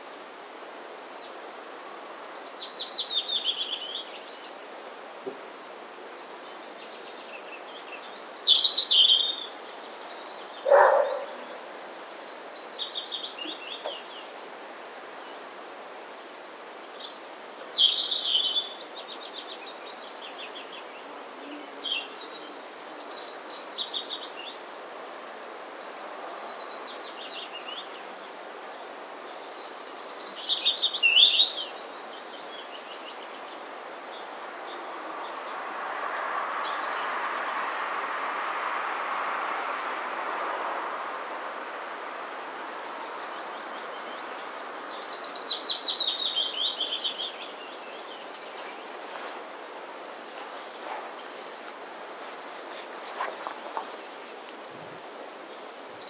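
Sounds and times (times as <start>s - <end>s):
wind noise hiss: 0.0s - 56.0s.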